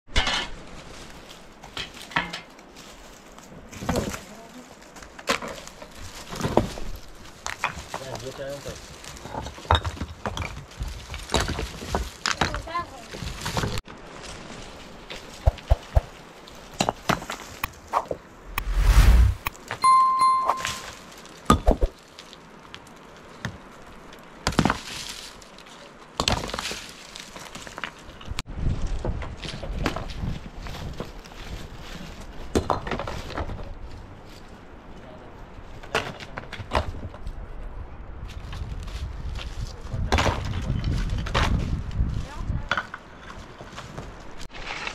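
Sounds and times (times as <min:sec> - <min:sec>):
steady ringing tone: 0:19.8 - 0:20.8.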